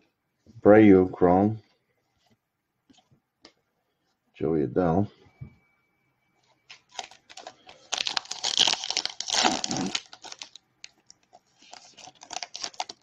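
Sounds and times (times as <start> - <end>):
plastic wrapper tearing and crinkling: 6.7 - 13.0.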